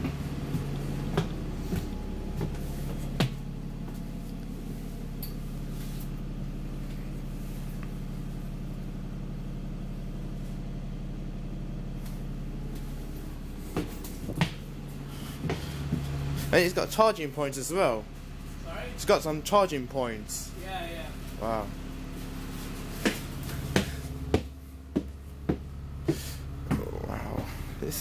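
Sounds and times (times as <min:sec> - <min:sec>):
bus idling hum: 0:00.0 - 0:28.0.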